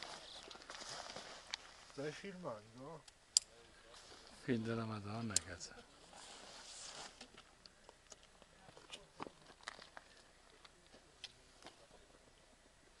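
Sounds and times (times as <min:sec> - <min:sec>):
faint clicks and crunches: 0:00.0 - 0:01.7, 0:07.1 - 0:11.8.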